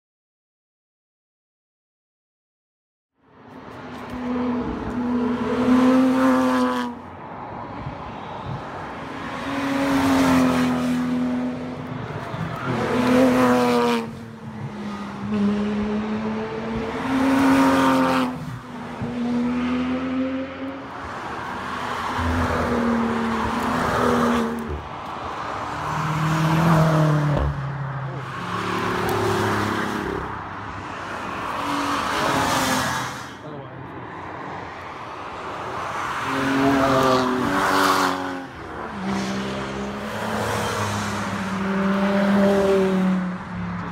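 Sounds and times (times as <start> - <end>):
rally cars passing at speed: 3.2 - 43.9.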